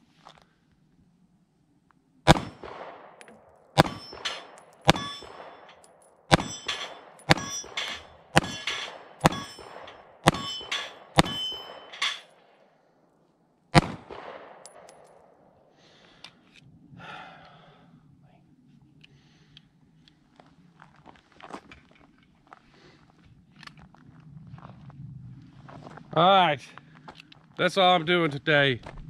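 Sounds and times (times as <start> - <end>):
pistol shots: 2.3 - 12.0, 13.7 - 15.4
steel targets clanging: 3.8 - 12.4.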